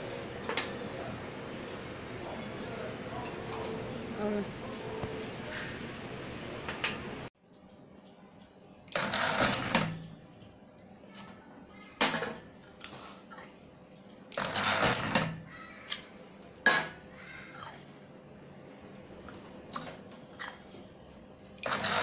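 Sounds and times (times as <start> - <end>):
taping machine mechanical run: 14.3 - 15.3, 21.6 - 22.0.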